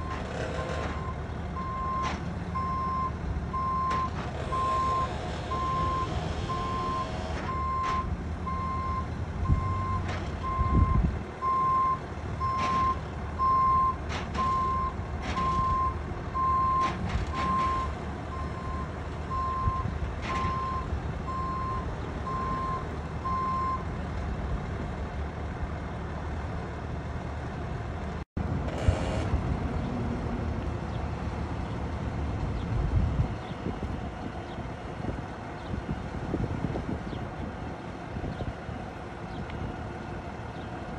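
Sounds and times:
truck engine running: 0.0 - 40.9
reversing alarm beeping: 1.0 - 23.8.

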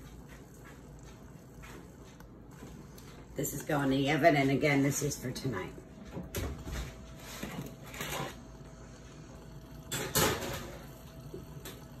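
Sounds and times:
baking sheet scraping on rack: 6.7 - 8.5.

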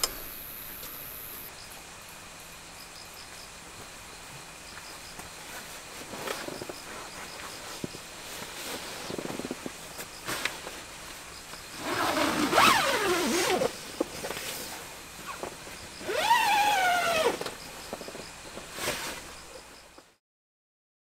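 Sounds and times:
tent zipper pulled: 11.8 - 13.8, 16.0 - 17.5.

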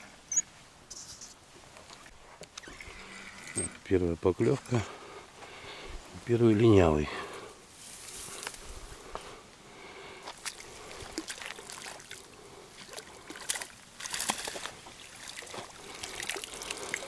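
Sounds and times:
fish splashing in water: 10.2 - 17.0.

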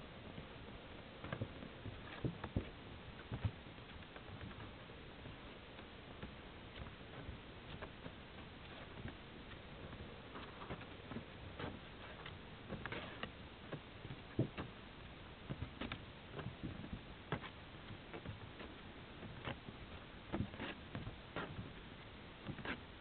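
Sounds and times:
steady hiss: 0.0 - 23.0
faint clicks and light taps: 1.2 - 22.8.

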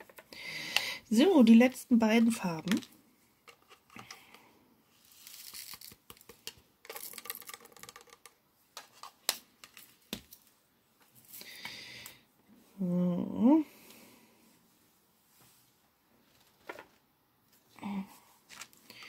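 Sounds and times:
plastic rustling and rattling: 5.1 - 10.4, 16.2 - 17.0.

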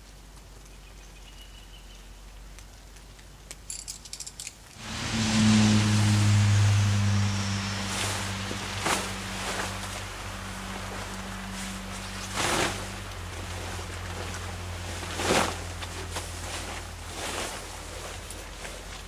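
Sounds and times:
low hum: 4.8 - 19.0
tent fabric swishing: 4.8 - 19.0.

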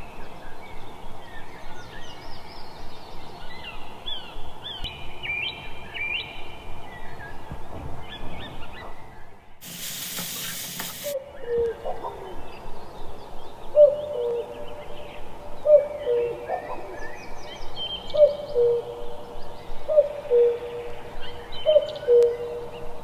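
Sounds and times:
birds chirping: 0.0 - 23.0
steady hiss: 9.6 - 11.2
bird hooting calls: 10.3 - 12.7, 13.7 - 17.3, 18.0 - 23.0.

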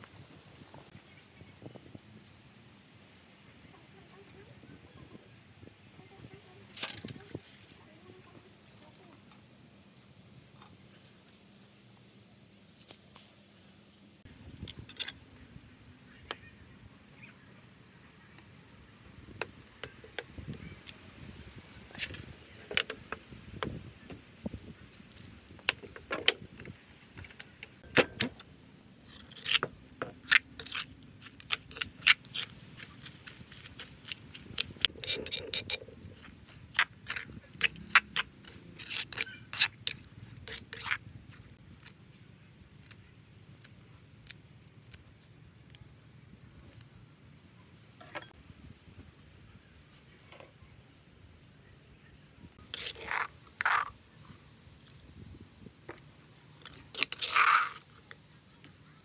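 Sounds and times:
metal spoon scraping stone mortar: 29.0 - 41.9, 52.6 - 54.0, 56.6 - 58.0.

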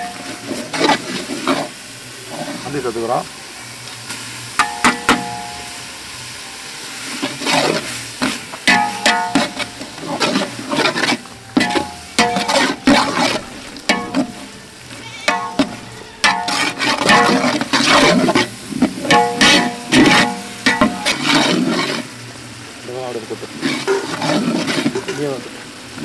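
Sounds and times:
pot ringing: 0.0 - 0.5, 4.6 - 5.9, 8.6 - 10.0, 11.0 - 21.6
ladle stirring thick wet food: 0.0 - 2.7, 7.1 - 26.0
ladle knocking metal pot: 4.6 - 5.6, 8.7 - 9.8, 11.6 - 14.5, 15.3 - 21.6.

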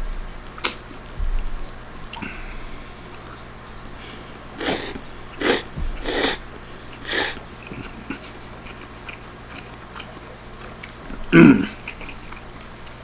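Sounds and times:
slurping spaghetti: 4.6 - 10.1.

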